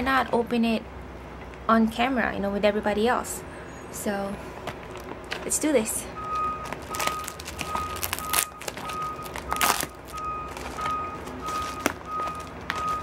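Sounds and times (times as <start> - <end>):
plastic mailer crinkling: 4.7 - 5.5, 6.2 - 13.0.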